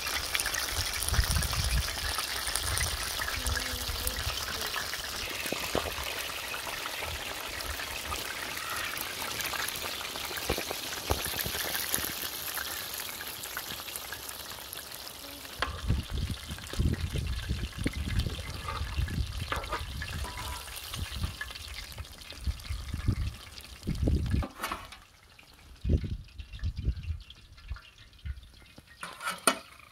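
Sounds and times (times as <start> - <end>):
fish sizzling in hot oil: 0.0 - 29.9.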